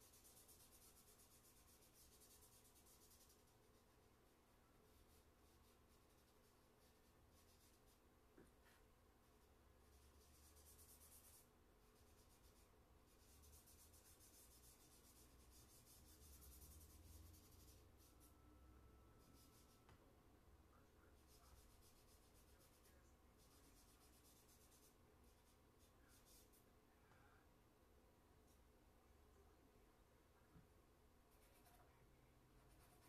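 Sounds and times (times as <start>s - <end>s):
charcoal scratching on paper: 0.0s - 4.1s, 4.8s - 8.0s, 8.6s - 18.4s, 19.2s - 19.9s, 21.0s - 26.6s, 31.3s - 31.9s, 32.6s - 33.0s.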